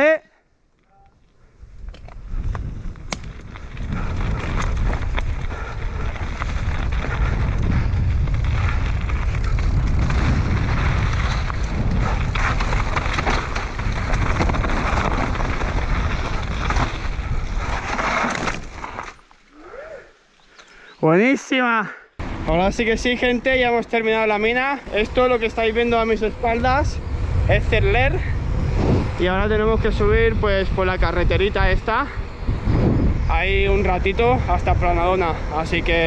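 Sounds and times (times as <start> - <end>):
wind buffeting microphone: 1.4 - 17.9, 24.4 - 36.0
stones rattling under bike tyres: 1.7 - 19.4.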